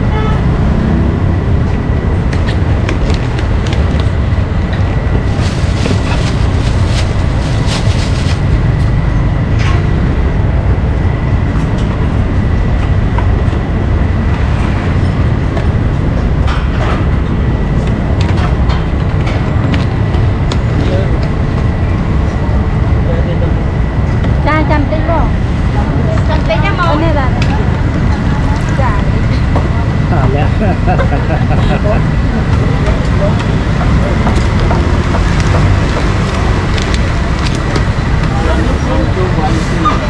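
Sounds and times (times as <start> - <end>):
low traffic rumble: 0.0 - 40.0
background chatter: 20.0 - 40.0.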